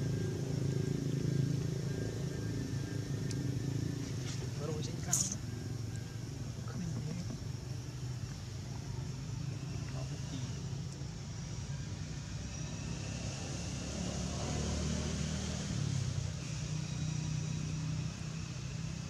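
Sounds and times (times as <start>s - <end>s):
low engine rumble: 0.0s - 12.8s.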